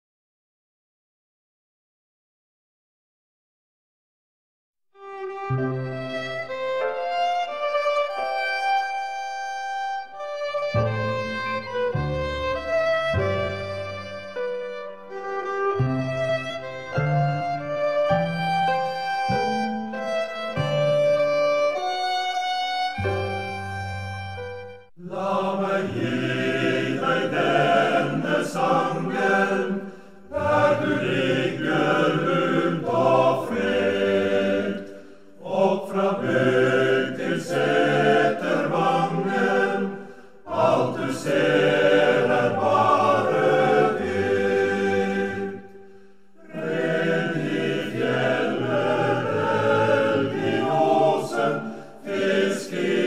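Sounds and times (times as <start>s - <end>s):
choir singing: 24.9s - 53.0s.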